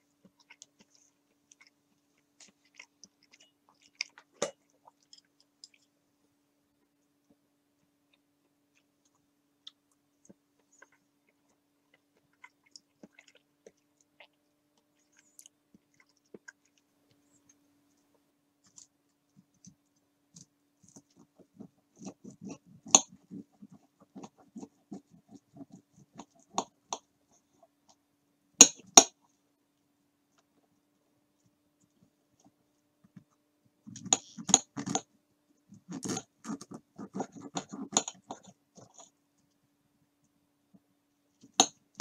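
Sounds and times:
knife crunching breaded cutlet: 35.8s - 39.0s.

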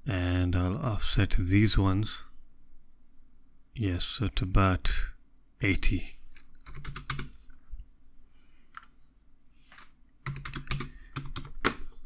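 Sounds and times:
computer keyboard keystrokes: 6.6s - 7.3s, 8.7s - 9.0s, 10.2s - 11.8s.

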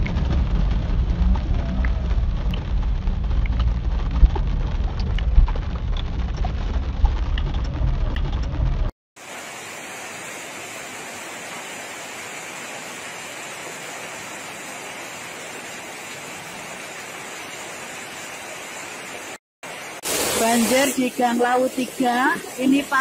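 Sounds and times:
floodwater rushing along street: 9.2s - 23.0s.

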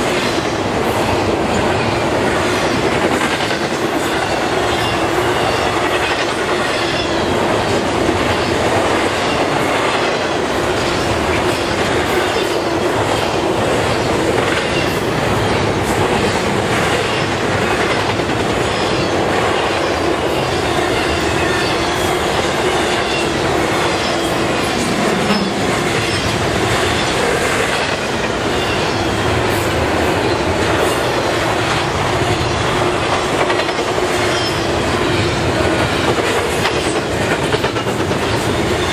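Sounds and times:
steel wheels rumbling on rail: 0.0s - 38.9s
wheels clicking over rail joints: 35.5s - 38.9s.

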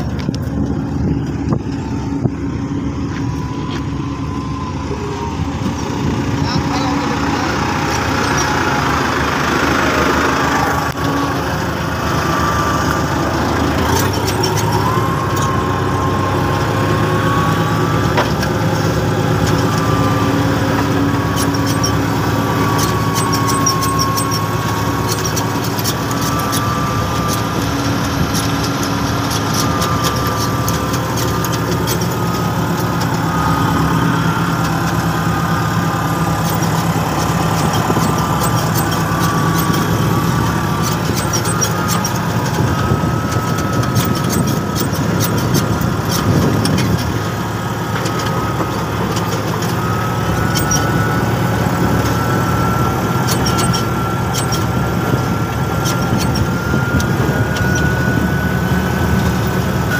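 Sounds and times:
diesel engine running: 0.0s - 59.9s
wavering whine: 0.0s - 59.9s.

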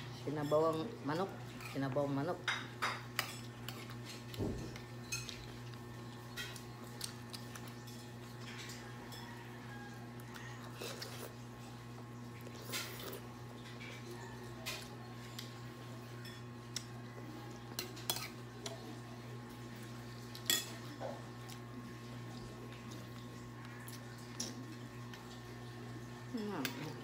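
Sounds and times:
metal spoons clinking against bowls: 0.2s - 4.2s, 5.0s - 5.7s, 7.6s - 9.4s, 17.7s - 18.8s, 20.3s - 20.9s.

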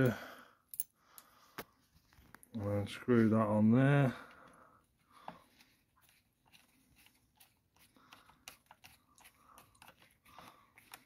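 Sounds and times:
small clicks and light scrapes: 5.2s - 11.0s.

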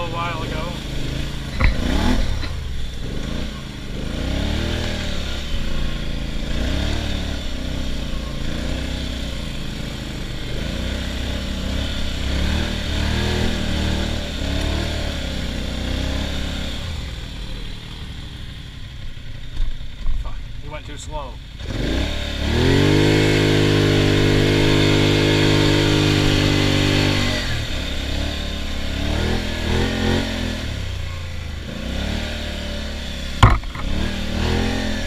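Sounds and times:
atv engine revving: 0.0s - 35.0s
brief thump: 33.4s - 34.0s.

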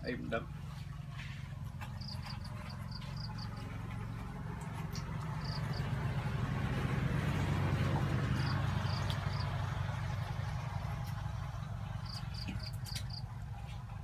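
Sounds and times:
low motor hum: 0.0s - 14.0s
insects chirping: 1.9s - 3.6s, 5.3s - 6.1s, 8.2s - 10.9s, 12.0s - 13.3s.

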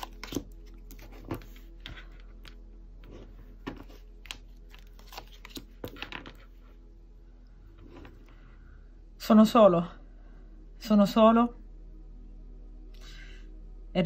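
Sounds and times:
faint background music: 0.0s - 14.0s.

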